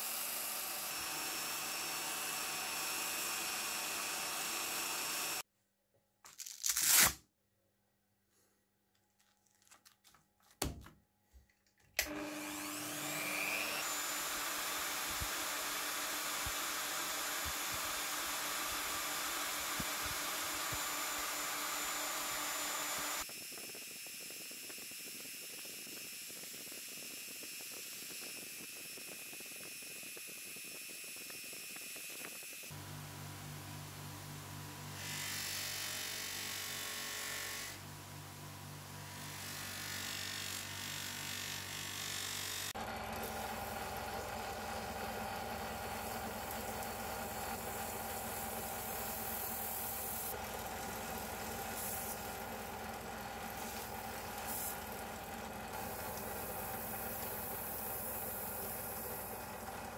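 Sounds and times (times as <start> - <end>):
polisher grinding steel: 0.0 - 5.4, 12.0 - 23.3, 46.0 - 59.4.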